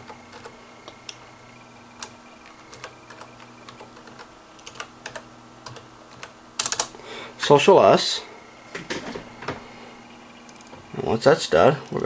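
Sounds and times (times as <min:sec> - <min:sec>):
computer keyboard typing: 0:00.0 - 0:01.2, 0:02.0 - 0:07.0, 0:10.5 - 0:10.7.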